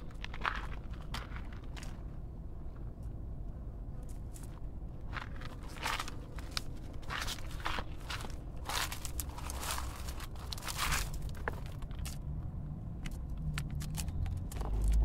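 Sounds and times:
footsteps crunching on dry ground: 0:00.0 - 0:02.2, 0:04.2 - 0:12.3.

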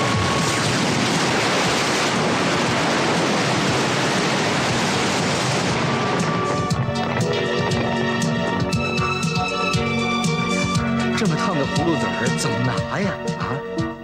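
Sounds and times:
loud rushing hiss: 0:00.0 - 0:08.6.

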